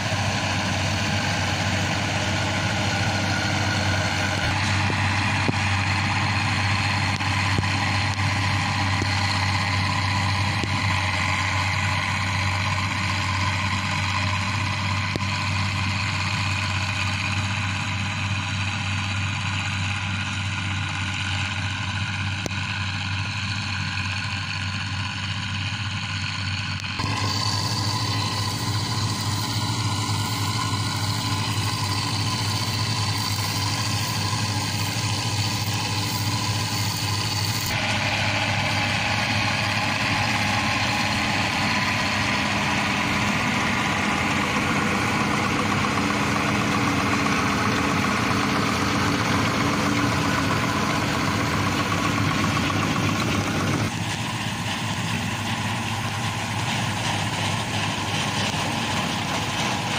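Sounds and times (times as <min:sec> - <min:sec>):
combine harvester diesel engine: 0:00.0 - 0:59.9.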